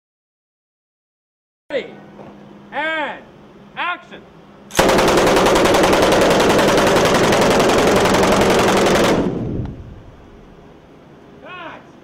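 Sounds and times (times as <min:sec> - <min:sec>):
gunfire echo: 0:04.7 - 0:09.7
automatic machine gun fire: 0:04.7 - 0:09.9.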